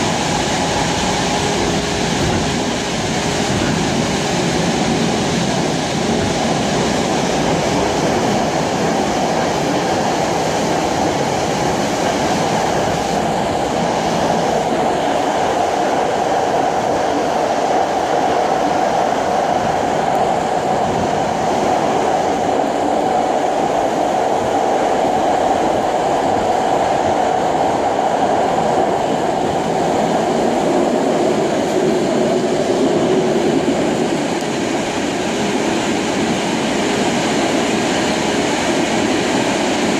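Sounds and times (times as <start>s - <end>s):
train wheels rumbling on rails: 0.0s - 39.9s.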